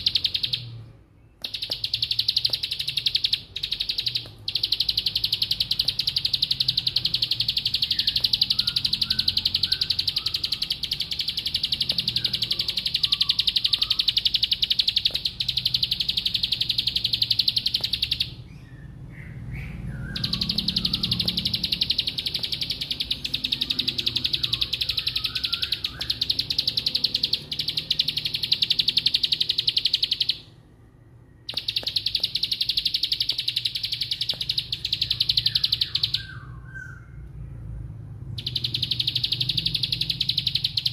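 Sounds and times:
bird singing fast trill: 0.0s - 37.2s, 38.3s - 40.9s.

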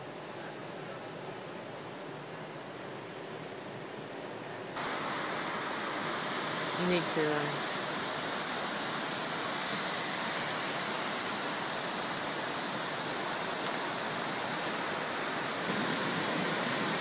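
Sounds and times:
fast-flowing floodwater rushing: 4.8s - 17.0s
heavy rain hissing: 4.8s - 17.0s.

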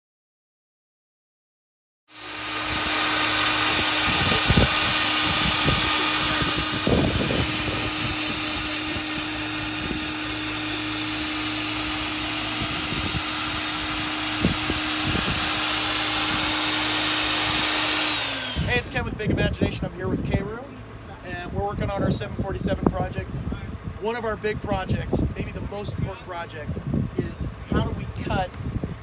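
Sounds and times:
magnetic drill motor whining: 2.1s - 19.9s.

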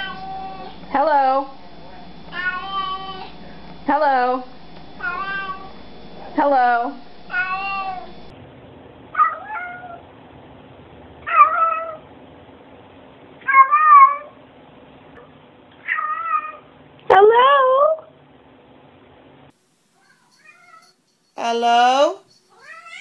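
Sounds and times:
cats meowing: 0.0s - 0.8s, 2.3s - 3.4s, 5.0s - 5.8s, 7.3s - 8.2s, 15.8s - 16.6s, 22.5s - 23.0s.

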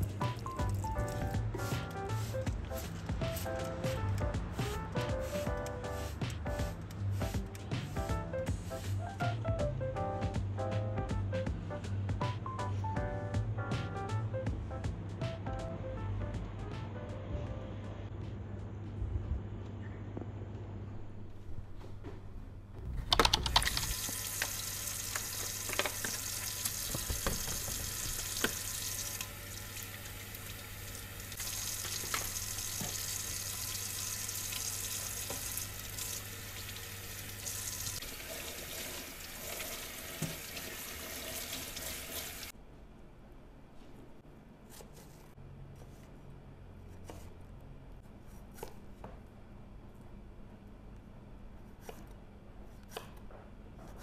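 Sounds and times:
tap water running into sink: 23.6s - 42.5s.

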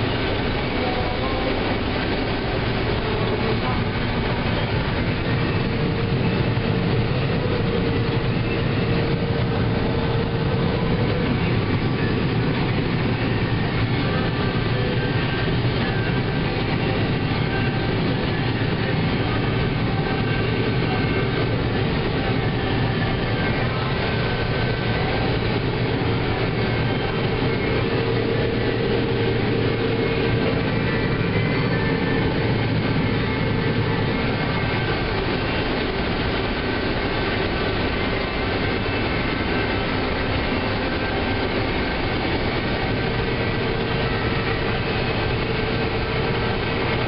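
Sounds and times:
combine harvester machinery drone: 0.0s - 47.0s
faint steady whine: 0.0s - 47.0s.

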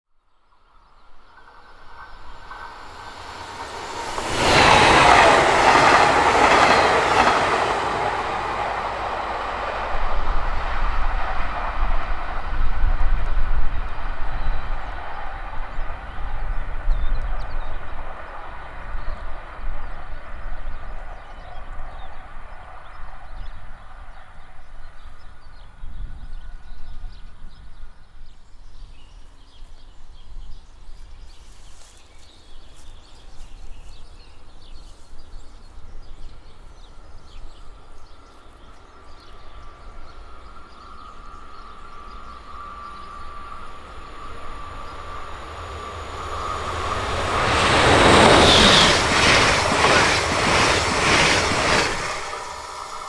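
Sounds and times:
train passing at speed: 0.5s - 25.5s, 32.7s - 53.0s
wheels rumbling on rails: 1.1s - 19.2s, 39.4s - 53.0s.

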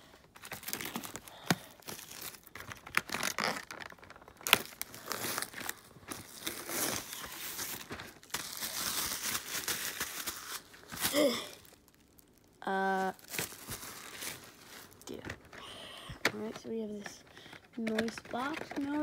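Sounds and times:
plastic shrink wrap crinkling: 0.0s - 19.0s
plastic wrap sharp snap: 0.4s - 16.6s.

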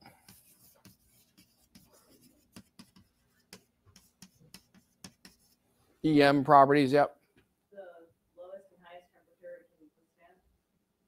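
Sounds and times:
chalk tapping on blackboard: 0.0s - 5.6s.

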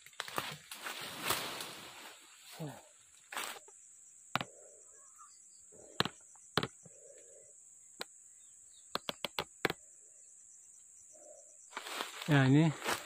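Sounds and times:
high insect drone: 0.0s - 13.0s
sharp clicks and snaps: 8.9s - 9.8s.

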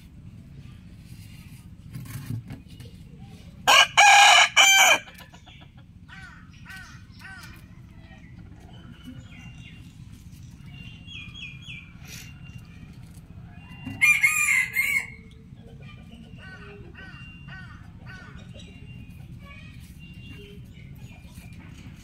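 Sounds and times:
rooster crowing: 3.7s - 5.1s, 13.9s - 15.2s
small birds chirping: 5.1s - 14.1s, 15.2s - 22.0s.

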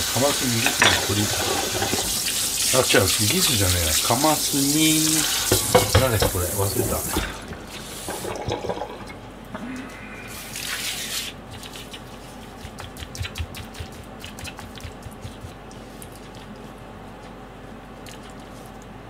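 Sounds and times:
hands squishing raw fish: 10.3s - 17.4s.

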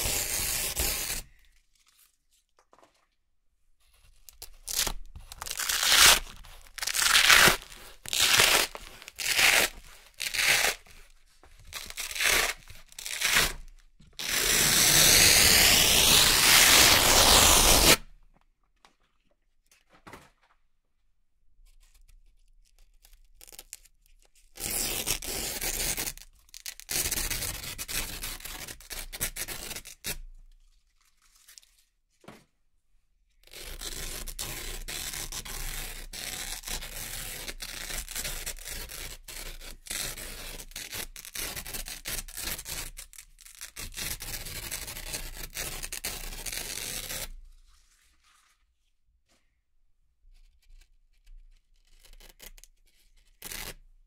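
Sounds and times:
velcro strips peeled apart: 4.3s - 11.0s, 11.6s - 18.1s, 22.7s - 23.9s, 33.4s - 47.4s, 50.7s - 53.8s.

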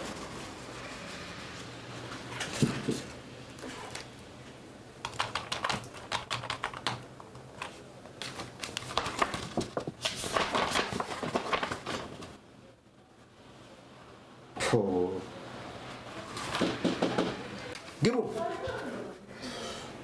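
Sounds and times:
keyboard typing: 5.0s - 9.9s
paper rustling: 7.5s - 12.4s.

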